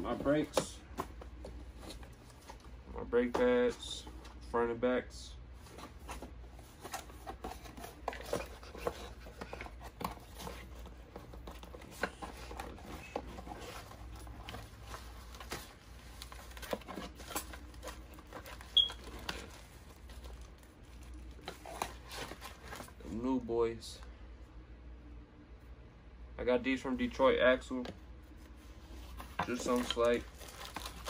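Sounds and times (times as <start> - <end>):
cardboard boxes rustling: 0.0 - 4.4, 5.6 - 23.1, 28.4 - 31.0.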